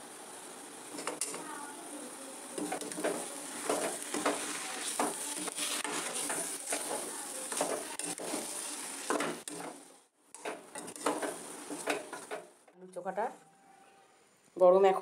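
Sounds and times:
faint sizzle: 0.0 - 15.0
metal spatula scraping pan: 2.6 - 12.4.

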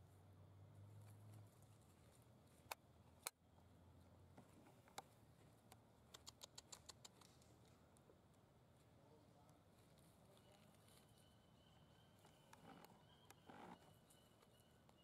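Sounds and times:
dry leaves scratched clicking: 6.1 - 7.8.

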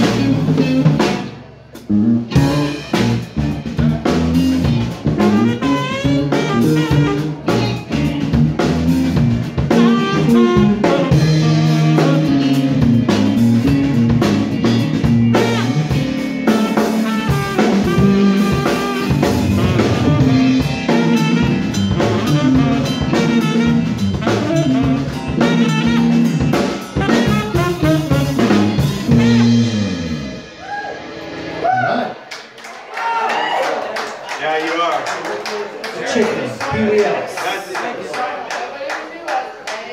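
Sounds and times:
electric guitar: 0.0 - 31.9
saxophone lead: 0.0 - 32.1
electric bass: 0.0 - 32.2
drum kit: 0.0 - 32.3.

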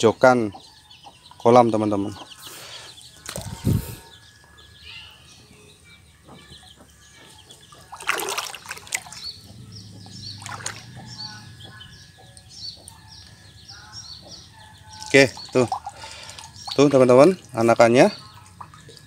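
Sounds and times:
birds chirping: 0.0 - 19.0
net splashing in water: 7.9 - 9.3, 10.4 - 10.9, 15.0 - 16.9.

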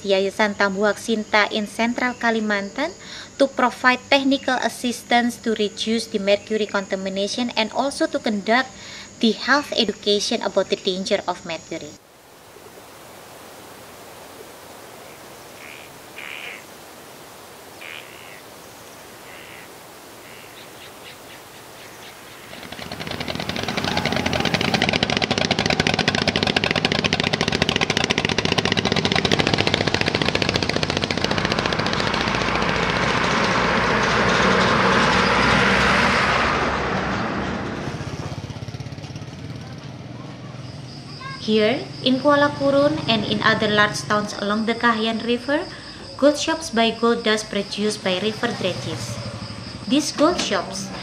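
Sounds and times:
short bird calls: 14.9 - 16.7, 17.7 - 22.9
engine chugging: 22.3 - 45.5, 46.6 - 51.0.

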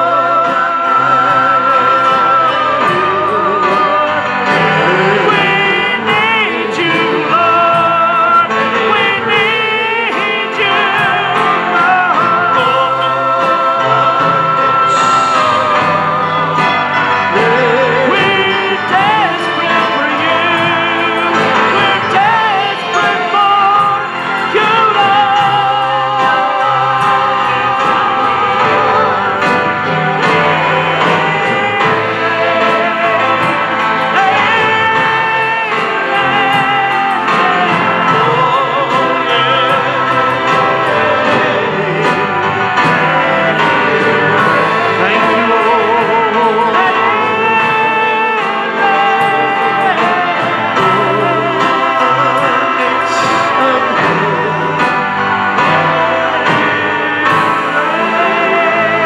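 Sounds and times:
drum beat: 0.0 - 59.0
guitars: 0.0 - 59.0
keyboard: 0.0 - 59.0
voices singing with vibrato: 0.0 - 59.0.

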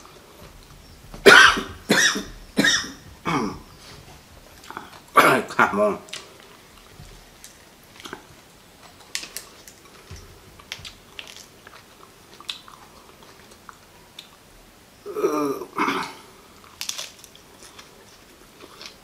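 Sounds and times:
soft chewing: 0.0 - 5.2, 6.0 - 14.8, 16.1 - 19.0
petals crackling as pulled apart: 7.2 - 11.8, 16.6 - 19.0.

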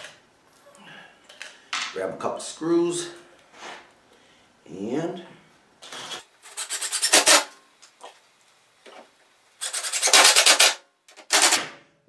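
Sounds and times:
power drill driving screws into wood: 5.8 - 7.5, 9.6 - 11.7.

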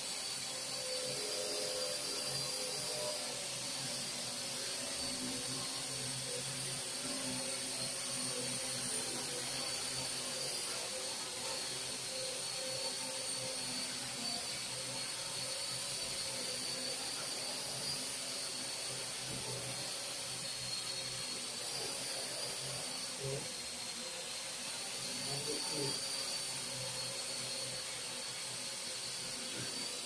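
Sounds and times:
quadcopter drone hovering: 0.0 - 30.0.

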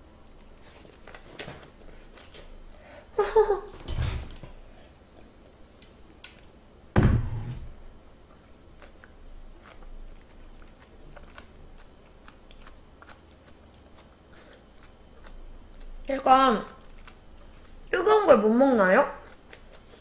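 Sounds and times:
faint chewing: 0.2 - 2.9, 8.3 - 17.9, 19.1 - 20.0
dull thump: 7.0 - 7.8.

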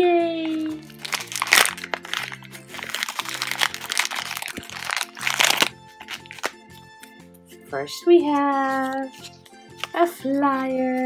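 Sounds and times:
background music with low notes: 0.0 - 11.0
plastic foil crinkling: 0.4 - 6.6.

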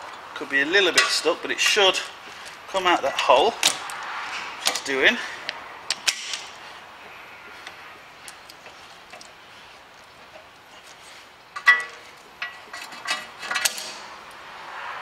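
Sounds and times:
metal tools clinking on brake: 0.8 - 4.0, 4.6 - 5.0, 10.0 - 14.4.

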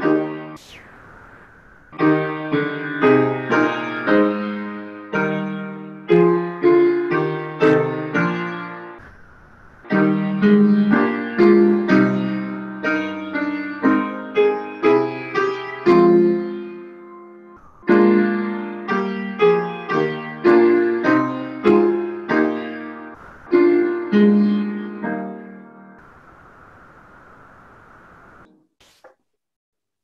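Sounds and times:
slow piano chords: 2.0 - 9.0, 9.9 - 26.0.

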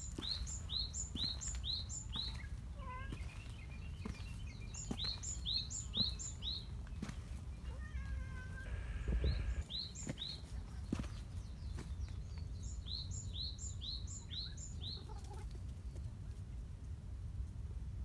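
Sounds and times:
soft wavering bird calls: 7.6 - 11.2.

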